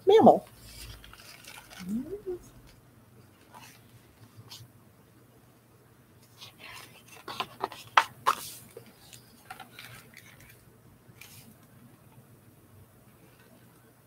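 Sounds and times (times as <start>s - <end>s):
book pages turning: 0.6s - 1.8s, 3.4s - 4.6s, 6.2s - 11.6s.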